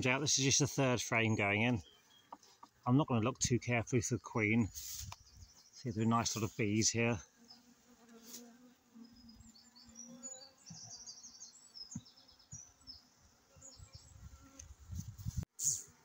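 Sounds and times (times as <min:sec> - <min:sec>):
bees buzzing: 0:06.0 - 0:16.0.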